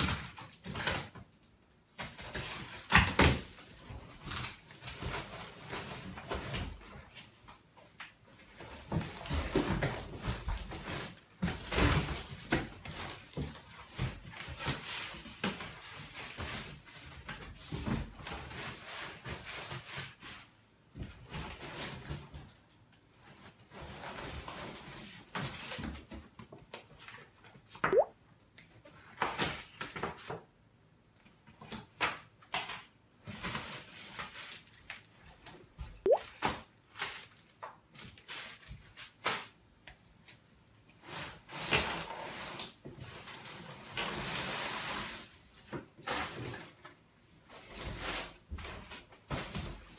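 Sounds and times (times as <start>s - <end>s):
cardboard and paper rustling: 0.0s - 22.6s.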